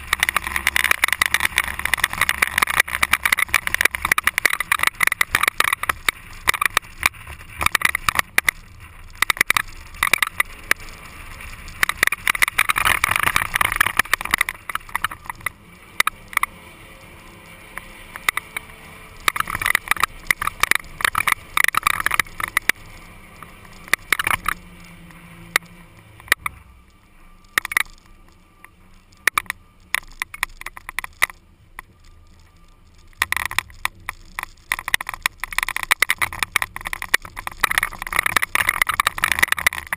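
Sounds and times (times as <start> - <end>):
sharp clicks and knocks: 0.0 - 39.9.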